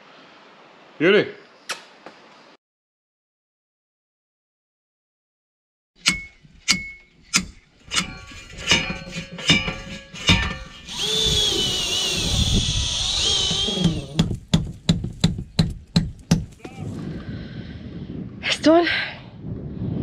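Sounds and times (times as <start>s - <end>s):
hammer blows ringing metallically: 6.0s - 10.9s
power tool whirring with high whine: 10.5s - 14.3s.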